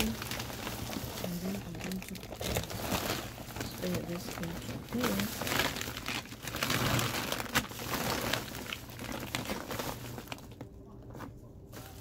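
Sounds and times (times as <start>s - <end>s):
plastic tarp and bags crinkling: 0.0s - 12.0s.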